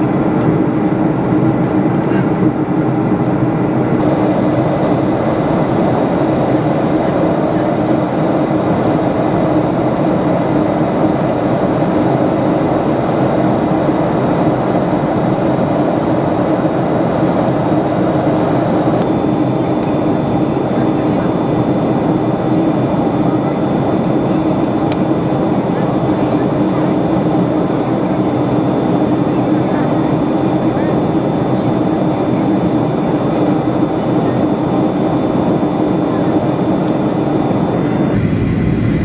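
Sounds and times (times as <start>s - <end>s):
rushing airflow: 0.0s - 22.5s, 36.5s - 39.0s
jet engine drone: 0.0s - 39.0s.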